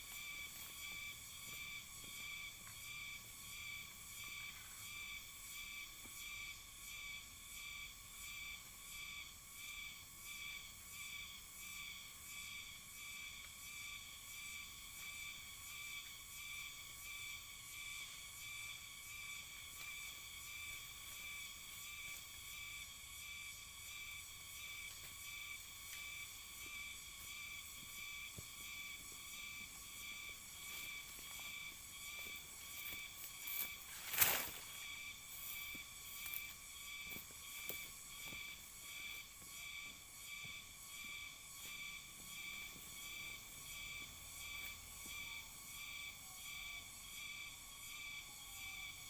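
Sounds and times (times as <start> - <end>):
insects chirring: 0.0 - 49.0
light rustling of leaves: 24.4 - 45.6.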